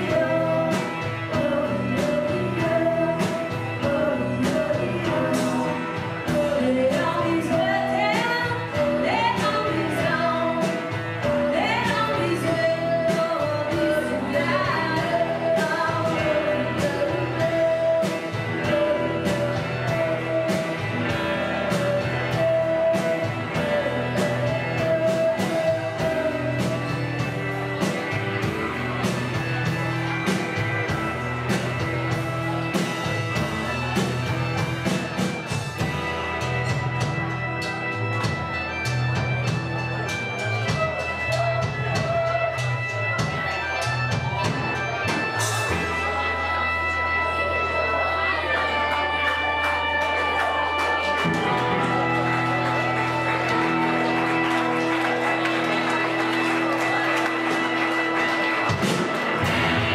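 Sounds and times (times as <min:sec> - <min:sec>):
woman singing: 0:00.0 - 0:27.1
steady drum beat: 0:00.0 - 0:46.3, 0:50.8 - 0:59.9
distorted electric guitars: 0:00.0 - 0:59.9.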